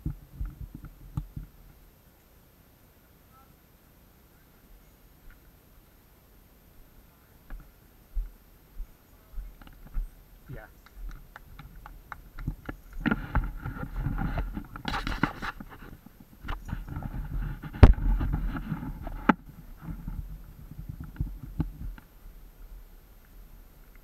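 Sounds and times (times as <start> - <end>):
horse hooves clopping: 7.5 - 24.0.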